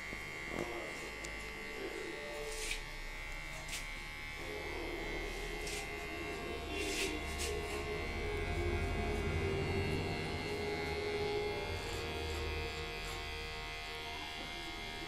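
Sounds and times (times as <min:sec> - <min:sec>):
hair clipper buzzing: 0:00.0 - 0:15.0.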